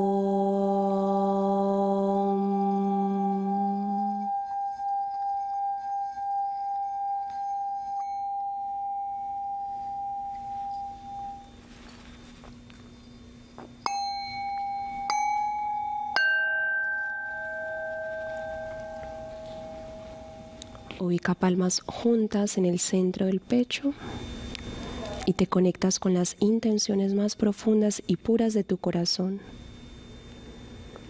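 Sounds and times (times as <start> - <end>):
person chanting om: 0.0 - 8.0, 17.0 - 21.1
singing bowl rubbed ringing: 0.0 - 31.0
singing bowls struck: 2.5 - 11.6, 13.8 - 21.0.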